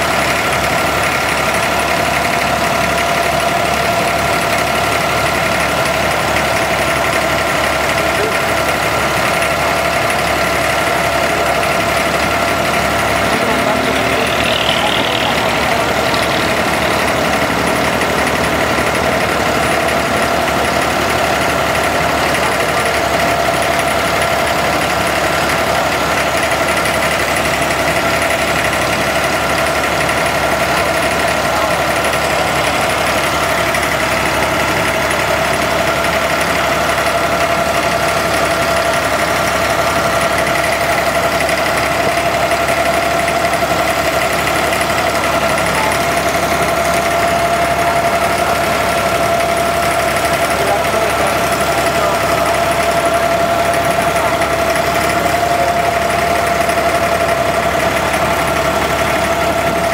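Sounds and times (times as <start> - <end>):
boat diesel engine droning: 0.0 - 59.9.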